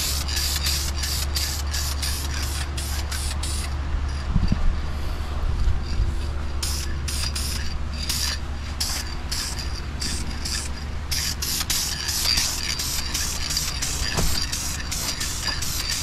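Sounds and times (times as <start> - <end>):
steady low hum: 0.0 - 16.0
aerosol can spraying: 11.2 - 16.0.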